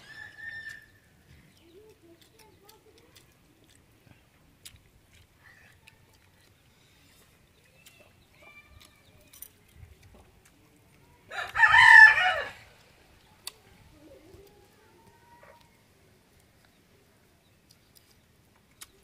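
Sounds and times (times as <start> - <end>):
rooster crowing: 11.3 - 12.7.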